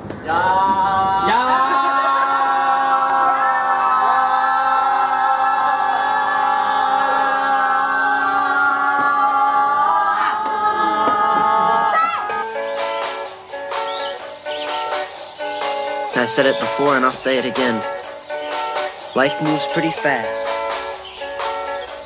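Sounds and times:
group of people holding long cry: 0:00.3 - 0:12.4.

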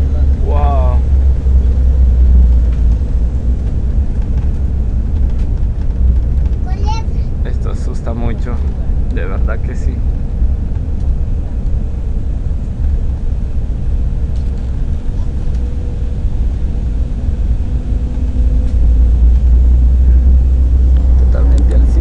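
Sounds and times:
airliner cabin rumble: 0:00.0 - 0:22.0.

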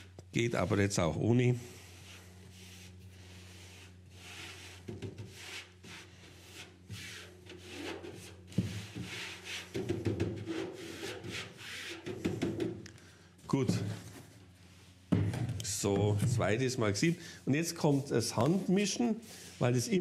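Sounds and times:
powder swishing through a sieve: 0:00.4 - 0:09.8, 0:16.5 - 0:20.0.

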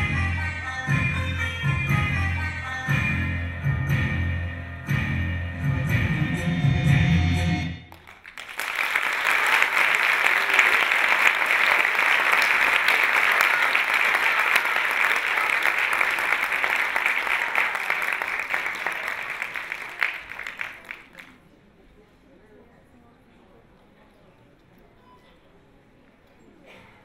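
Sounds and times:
music: 0:00.0 - 0:07.9
audience applauding: 0:07.9 - 0:21.4.

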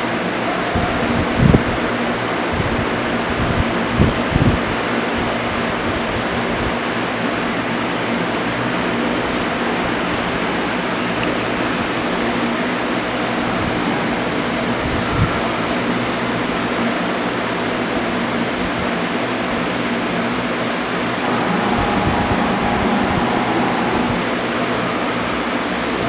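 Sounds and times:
cnc router whirring: 0:21.1 - 0:26.0.

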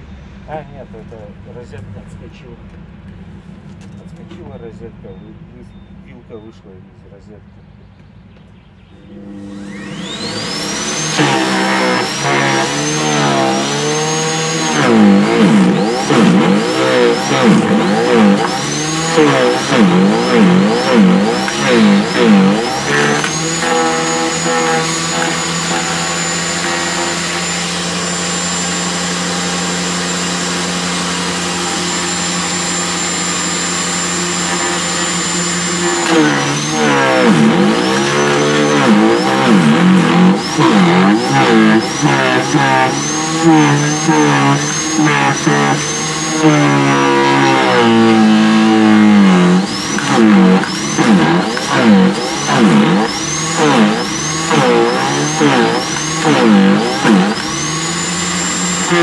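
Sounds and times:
garden shredder motor whine: 0:09.0 - 0:59.0.

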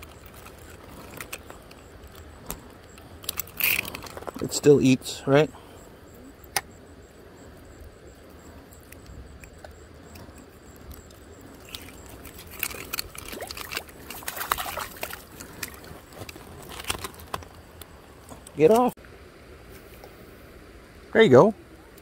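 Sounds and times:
splashing and clicking: 0:08.8 - 0:18.8
running water: 0:11.5 - 0:16.1.

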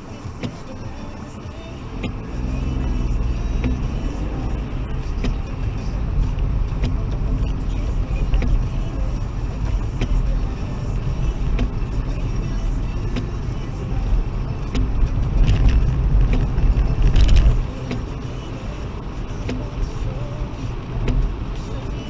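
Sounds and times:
car cabin rumble: 0:00.0 - 0:22.0
light ticks: 0:05.1 - 0:07.6, 0:08.2 - 0:08.9, 0:09.6 - 0:10.6, 0:11.3 - 0:13.8, 0:20.7 - 0:21.7.

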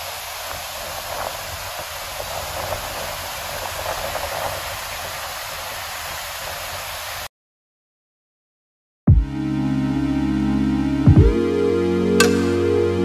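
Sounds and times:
waterfall rushing over rock: 0:00.0 - 0:07.3.

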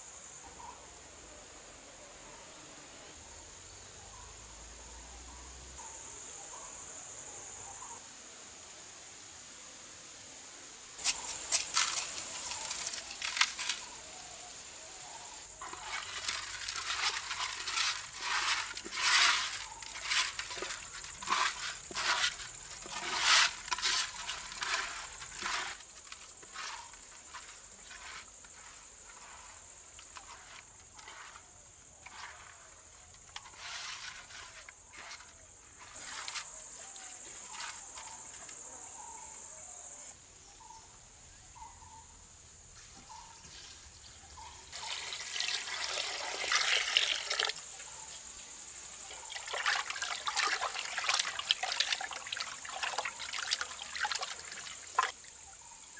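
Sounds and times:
crickets chirring: 0:00.0 - 0:55.9
hands mixing fish with salt: 0:11.0 - 0:14.0, 0:15.6 - 0:32.7, 0:49.2 - 0:55.2.

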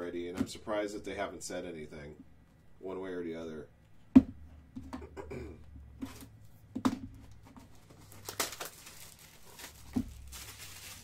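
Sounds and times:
wrapper crinkling: 0:07.8 - 0:11.0.

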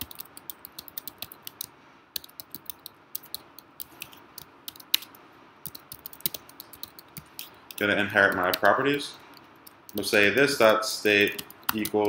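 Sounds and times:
typing on computer keyboard: 0:00.0 - 0:12.0.

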